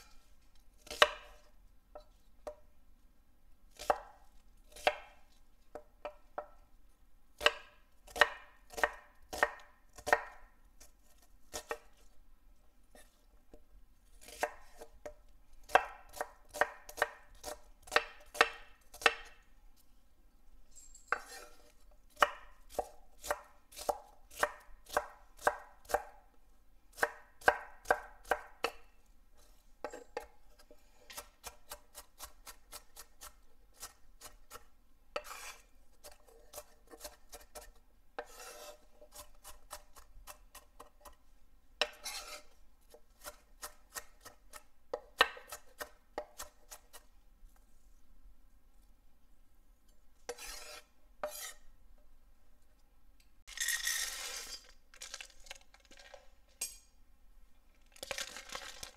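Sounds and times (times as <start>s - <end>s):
knife chopping on wooden board: 0.8s - 1.4s, 3.8s - 4.1s, 4.7s - 6.6s, 7.4s - 10.4s, 14.2s - 19.4s, 22.2s - 26.1s, 27.0s - 28.8s, 43.2s - 47.0s, 50.3s - 51.5s.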